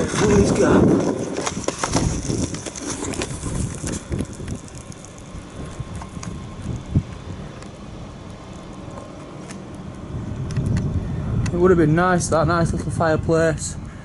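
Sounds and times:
footsteps on brick rubble: 0.0s - 9.6s
wind rumbling on microphone: 0.0s - 14.0s.

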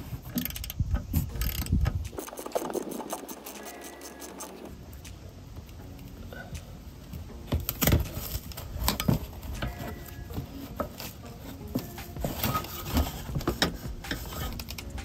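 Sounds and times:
hand tool tapping and scraping: 7.5s - 15.0s.

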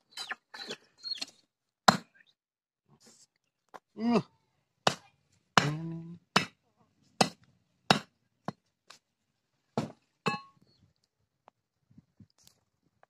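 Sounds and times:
cleaver chopping on wooden block: 1.9s - 2.1s, 4.9s - 6.6s, 7.2s - 8.6s.

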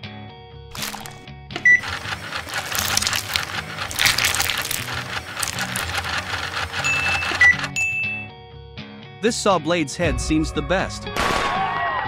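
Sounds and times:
toy machine grinding cakes: 0.7s - 7.8s
background music: 0.7s - 12.0s.

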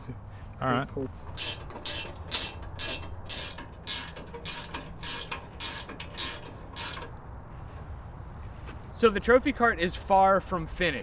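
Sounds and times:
ratchet wrench rasping: 1.2s - 7.2s.

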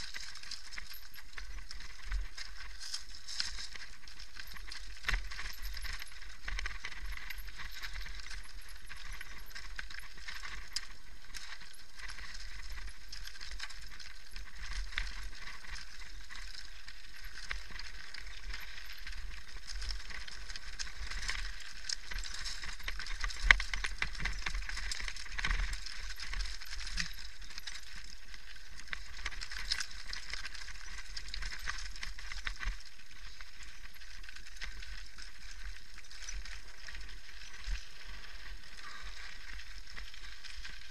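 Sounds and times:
bike rattling: 0.0s - 40.9s
tyres crunching over stones: 0.0s - 40.9s.

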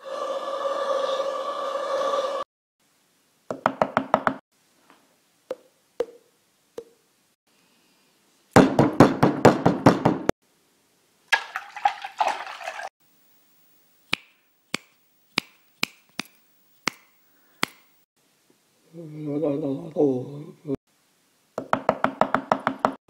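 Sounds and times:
sharp knocks in bursts: 8.6s - 10.3s, 21.6s - 23.0s.

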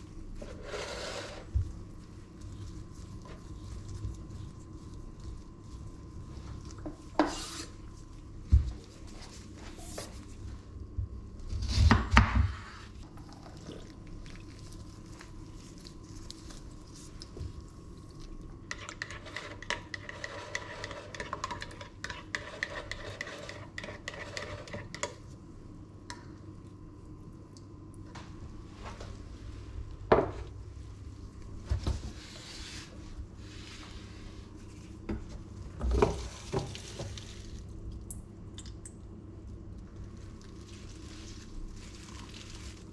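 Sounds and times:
stirring in a bowl: 0.0s - 10.4s, 12.8s - 25.5s, 39.5s - 42.9s
low steady hum: 0.0s - 42.9s.

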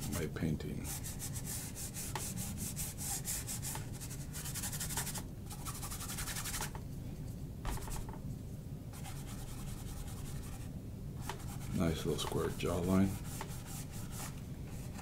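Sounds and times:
brush scrubbing on canvas: 11.3s - 15.0s.

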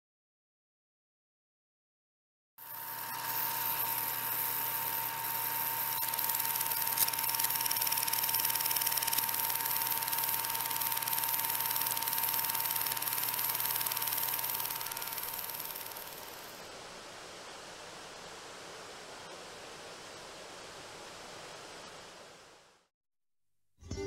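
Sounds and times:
film projector whirring: 2.6s - 16.6s
projector click: 5.8s - 16.5s.

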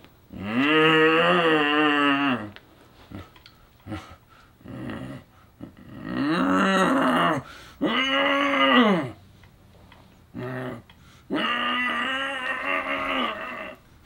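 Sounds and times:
small scattered noises: 0.0s - 14.0s
man growling in zombie voice: 3.9s - 9.2s, 10.4s - 13.8s.

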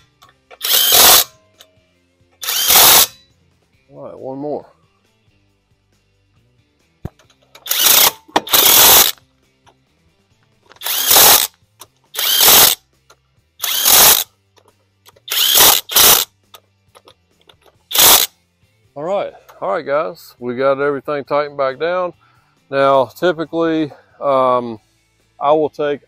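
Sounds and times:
impact wrench hammering: 0.6s - 1.3s, 2.4s - 3.2s, 7.1s - 9.2s, 10.8s - 11.5s.

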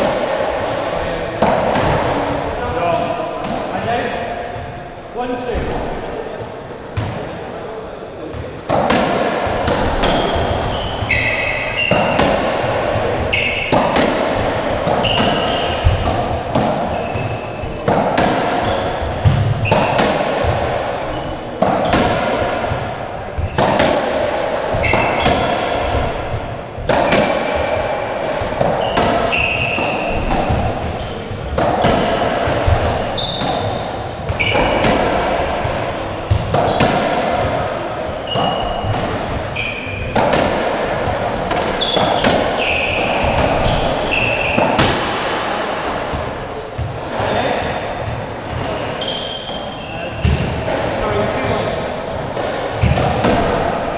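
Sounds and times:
ball smacking rackets and walls: 0.0s - 4.8s, 6.7s - 7.5s, 8.2s - 53.9s
shoe squeaks on wooden floor: 9.7s - 12.2s, 13.3s - 13.8s, 15.0s - 16.0s, 18.6s - 20.0s, 24.8s - 27.2s, 28.8s - 31.2s, 33.1s - 34.8s, 39.5s - 40.2s, 41.8s - 44.8s, 48.6s - 50.4s.

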